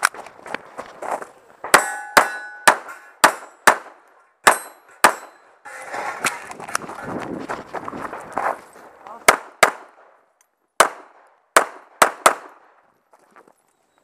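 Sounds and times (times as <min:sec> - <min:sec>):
rustling footsteps on gravel: 0:00.0 - 0:01.7, 0:05.7 - 0:09.3, 0:12.9 - 0:14.0
steel targets ringing: 0:01.7 - 0:03.6, 0:04.4 - 0:06.4
pistol shots: 0:01.7 - 0:05.3, 0:09.3 - 0:10.0, 0:10.8 - 0:12.7.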